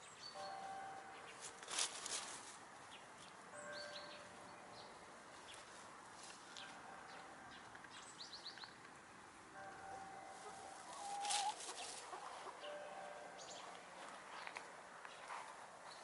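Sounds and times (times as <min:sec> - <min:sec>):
small birds chirping: 0:00.0 - 0:05.8, 0:06.5 - 0:08.8.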